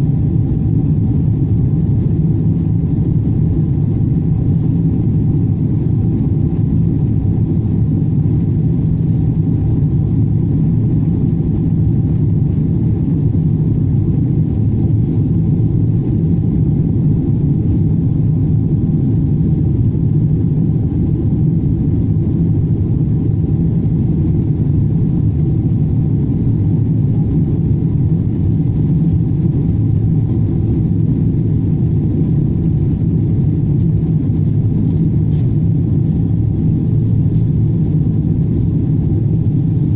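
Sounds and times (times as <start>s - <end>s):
jet engines roaring: 0.0s - 39.9s.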